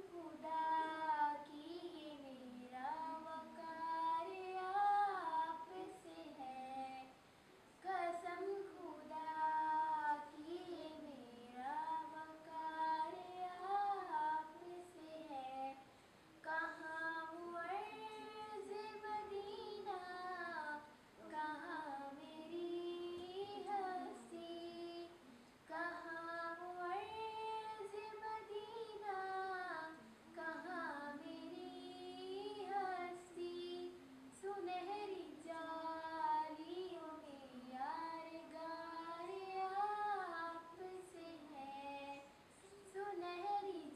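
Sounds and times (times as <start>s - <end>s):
girl singing unaccompanied: 0.0s - 43.9s.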